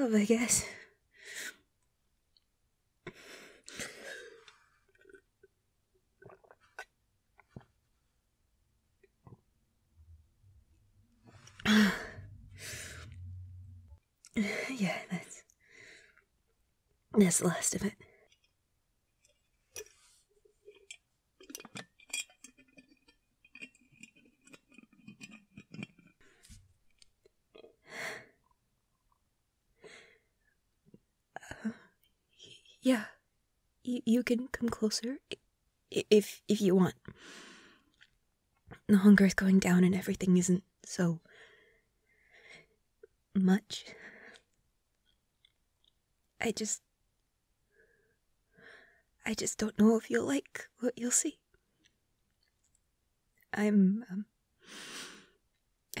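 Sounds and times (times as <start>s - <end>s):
woman breathing: 11.2s - 16.3s, 29.8s - 30.4s, 37.1s - 37.9s, 41.3s - 42.8s, 47.7s - 49.1s, 54.6s - 55.4s
woman breathing out: 11.3s - 13.5s
glass jar clinking: 21.5s - 22.8s.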